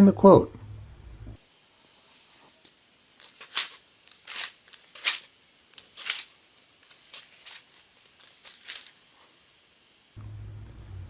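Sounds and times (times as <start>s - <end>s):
paper pages rustling: 3.2s - 9.0s.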